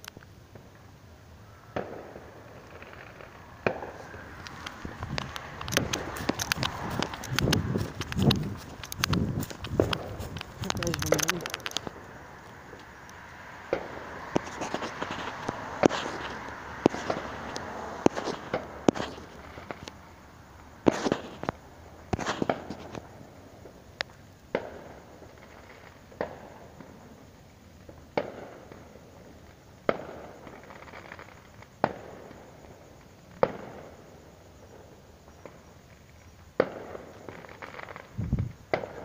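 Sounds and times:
fireworks banging: 1.7s - 20.0s, 20.7s - 23.8s, 24.5s - 27.0s, 36.6s - 39.0s.

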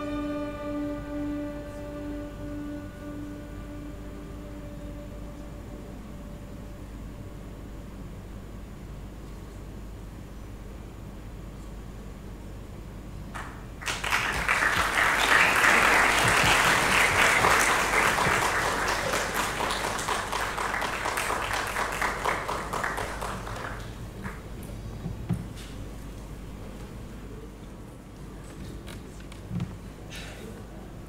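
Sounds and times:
audience applauding: 13.4s - 24.6s.

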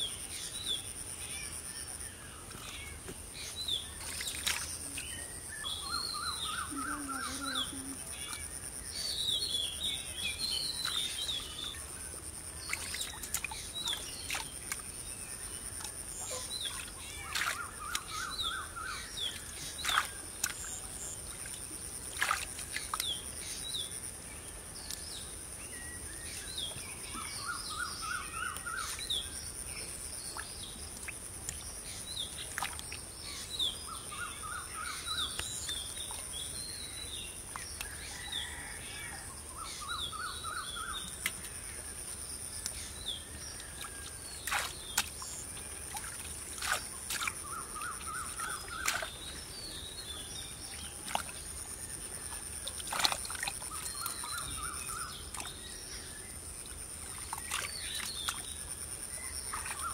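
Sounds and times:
birds chirping: 0.0s - 11.9s
hand splashing in muddy water: 4.0s - 4.8s, 21.4s - 23.2s, 43.6s - 49.3s, 52.6s - 54.2s.

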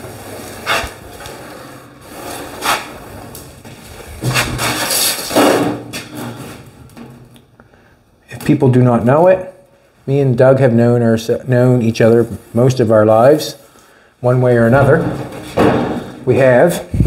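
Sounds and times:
metal scraping on metal: 0.0s - 3.4s
metal knocks and clanks: 14.7s - 16.4s.

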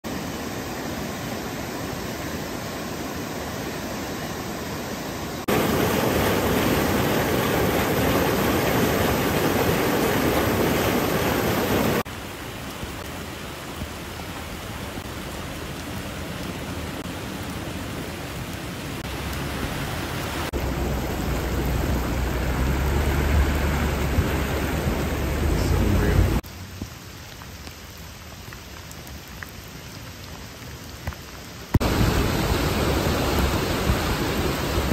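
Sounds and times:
falling rain: 0.0s - 34.9s
rushing floodwater: 0.0s - 34.9s.

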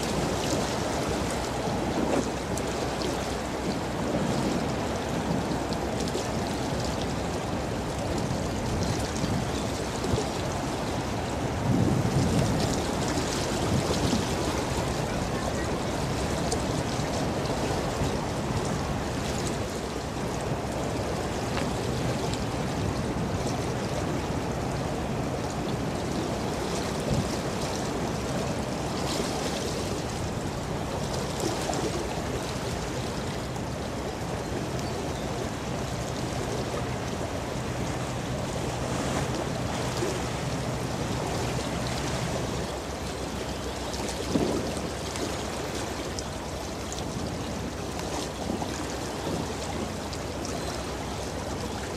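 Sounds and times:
rushing wash of water: 0.0s - 51.9s
wind noise: 11.3s - 16.4s.

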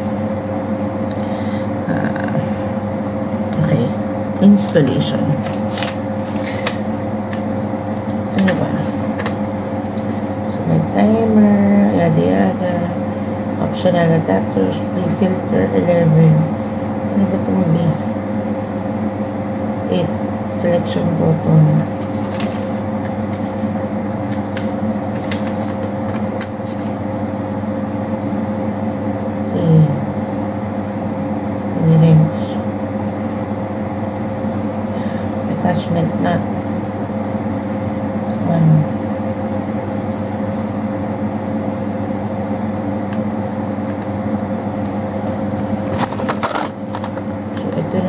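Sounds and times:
low machine hum: 0.0s - 48.0s
paper rustling: 5.4s - 7.0s, 21.8s - 23.6s, 24.4s - 27.0s.

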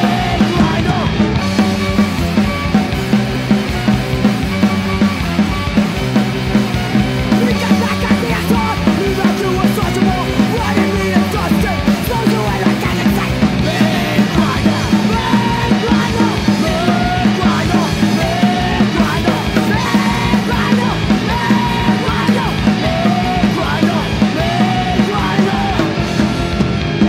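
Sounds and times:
bass guitar: 0.0s - 27.0s
distorted electric guitars: 0.0s - 27.0s
driving drum beat: 0.0s - 27.0s
person yelling vocals: 7.4s - 25.9s.

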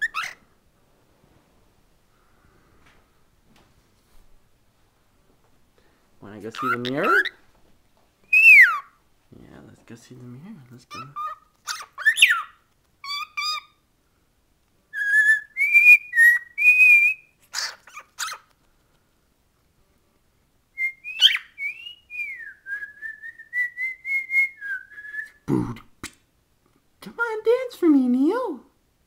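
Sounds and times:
cockatiel whistling and chirping: 0.0s - 0.4s, 8.3s - 8.9s, 10.9s - 13.8s, 14.9s - 18.4s, 20.8s - 25.4s.

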